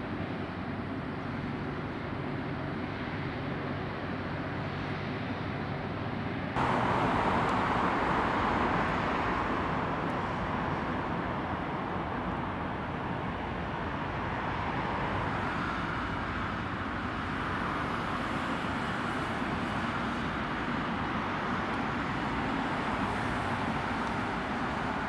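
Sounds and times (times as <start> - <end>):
jet engines running: 6.6 - 25.0.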